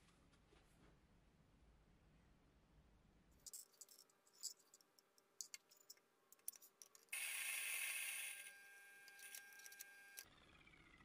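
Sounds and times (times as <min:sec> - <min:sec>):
coffee beans rattling: 0:06.5 - 0:08.5
coffee grinder grinding: 0:07.1 - 0:10.3.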